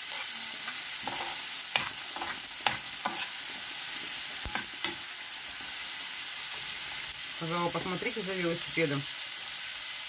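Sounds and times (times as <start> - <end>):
food sizzling in a pan: 0.0 - 10.0.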